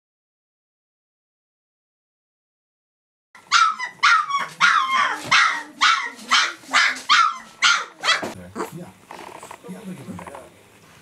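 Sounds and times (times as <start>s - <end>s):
puppy yapping: 3.4s - 8.8s.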